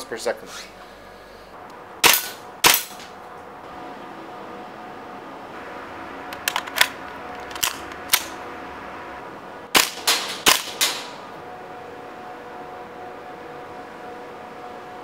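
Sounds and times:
airsoft rifle shots: 2.0s - 3.1s, 9.7s - 11.2s.

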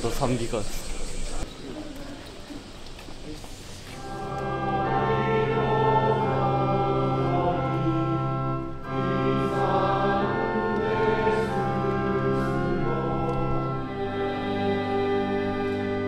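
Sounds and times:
choir singing a hymn: 3.9s - 16.0s.

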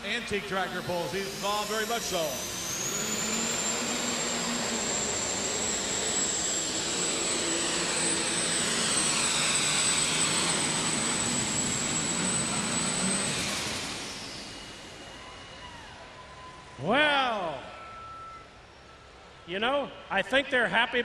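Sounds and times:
tractor diesel engine roaring: 0.0s - 17.0s
turbo whistle: 0.8s - 7.2s, 12.1s - 16.9s, 17.5s - 19.0s.

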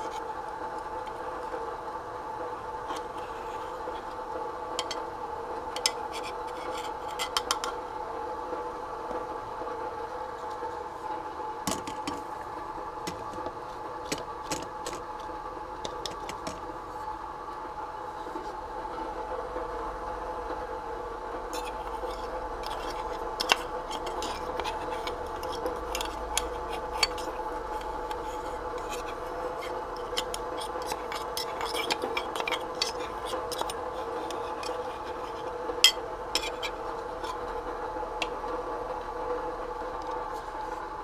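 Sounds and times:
appliance hum: 0.0s - 41.0s
dishes and utensils clinking: 21.6s - 37.4s.

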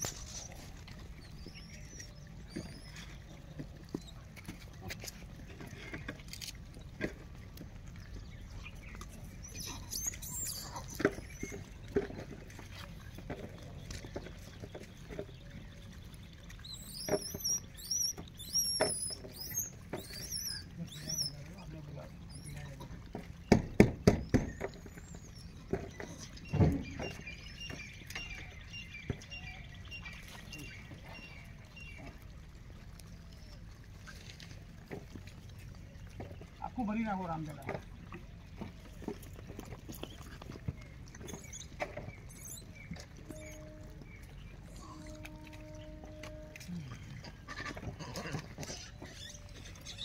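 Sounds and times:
monkeys knocking and rustling: 0.0s - 7.9s, 8.7s - 28.5s, 37.6s - 43.6s, 47.0s - 50.0s
low steady rumble: 24.7s - 50.0s.

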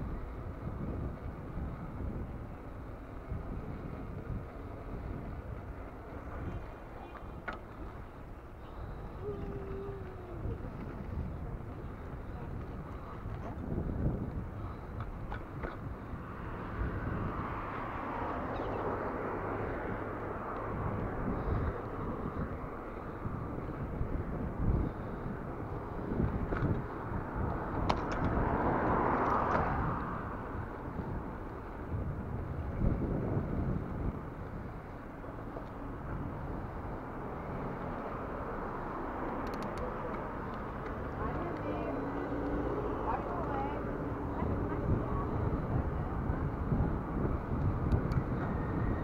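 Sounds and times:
bicycle tyres on paving stones: 0.0s - 49.0s
wind noise on microphone: 0.0s - 49.0s
bike clicks and rattles: 26.0s - 29.6s, 39.2s - 41.7s
clicks: 39.3s - 41.7s.

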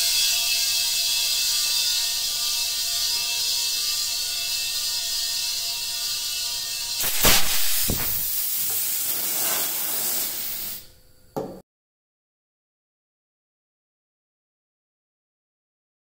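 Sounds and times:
sharp knock: 7.0s - 8.3s
stopper popping with loud crack: 7.0s - 8.6s
compressed air hissing: 7.0s - 10.9s.

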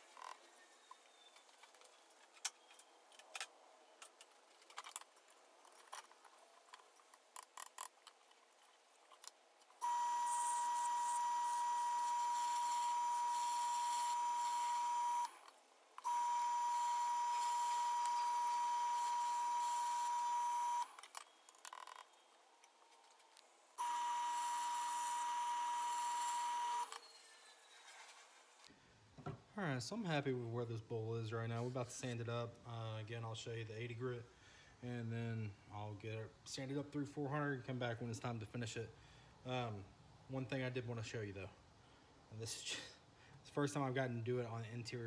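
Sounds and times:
clicks and knocks of tools: 0.1s - 9.8s
wood lathe whining: 9.8s - 21.0s, 23.8s - 27.8s.

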